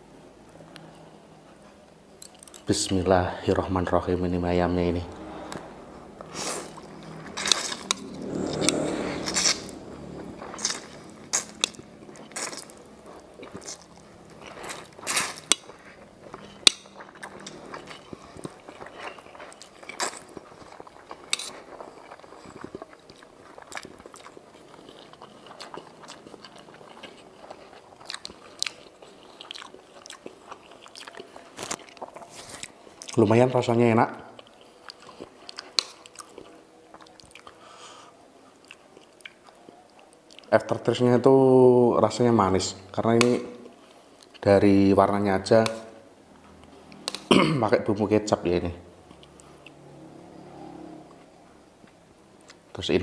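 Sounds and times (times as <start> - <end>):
chewing with wet smacks: 5.1 - 37.6, 38.5 - 41.0, 46.4 - 47.3, 49.0 - 50.4.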